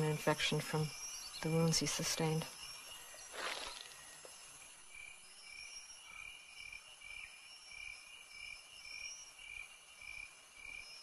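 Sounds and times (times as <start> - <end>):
insects chirping: 0.0 - 11.0.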